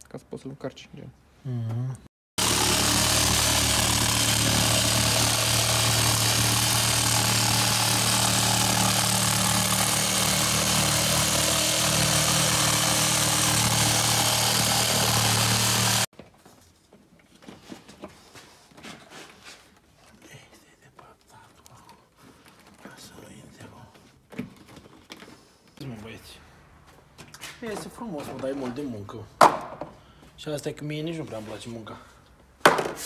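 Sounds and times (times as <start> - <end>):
jigsaw buzzing: 2.4 - 16.1.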